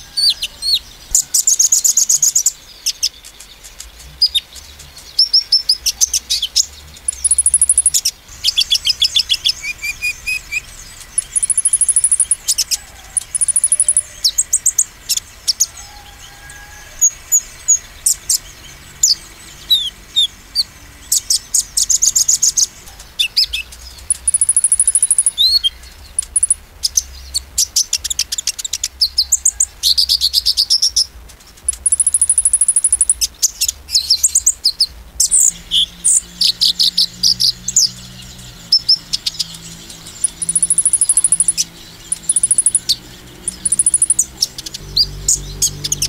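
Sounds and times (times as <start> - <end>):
sunbird singing rapid chirps: 0.0 - 46.0.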